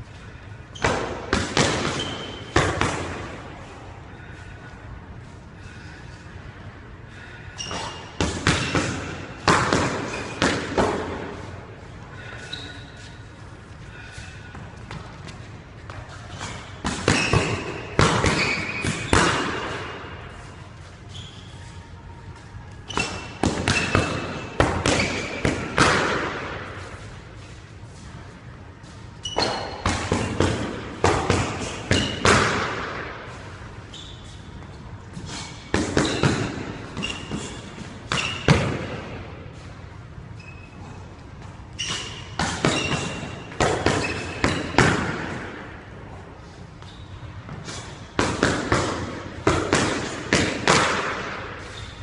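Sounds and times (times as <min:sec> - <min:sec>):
sneakers squeaking on wooden floor: 0:00.7 - 0:02.6, 0:07.6 - 0:09.2, 0:12.2 - 0:13.4, 0:14.4 - 0:20.1, 0:20.8 - 0:22.0, 0:22.7 - 0:25.7, 0:29.2 - 0:30.4, 0:31.4 - 0:32.5, 0:33.8 - 0:39.0, 0:40.3 - 0:45.4, 0:46.8 - 0:48.0, 0:51.6 - 0:52.0
boxing gloves punching: 0:00.8 - 0:03.4, 0:07.7 - 0:11.4, 0:15.9 - 0:19.9, 0:22.9 - 0:26.6, 0:29.4 - 0:33.2, 0:35.3 - 0:39.2, 0:41.9 - 0:45.5, 0:47.7 - 0:51.4.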